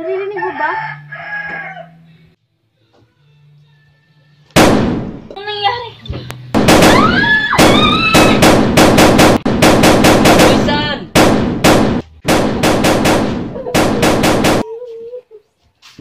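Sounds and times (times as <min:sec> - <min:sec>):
rapid gunfire: 0:04.6 - 0:05.3, 0:06.6 - 0:14.6.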